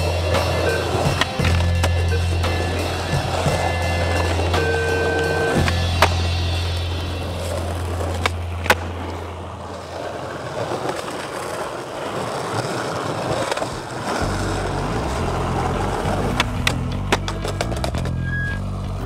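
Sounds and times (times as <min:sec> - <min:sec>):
low music: 0:00.0 - 0:09.7, 0:14.2 - 0:19.0
skateboard clacks: 0:00.0 - 0:19.0
skateboard wheels rolling on pavement: 0:00.0 - 0:19.0.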